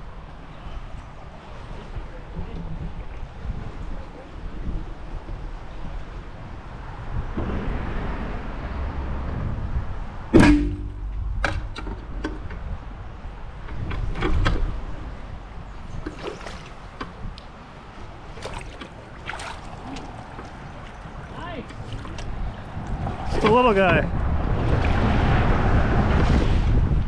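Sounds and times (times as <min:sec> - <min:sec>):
wind rumble on microphone: 0:00.0 - 0:27.0
low ringing: 0:10.2 - 0:12.2
fish splashing in water: 0:16.0 - 0:17.0, 0:18.2 - 0:23.6.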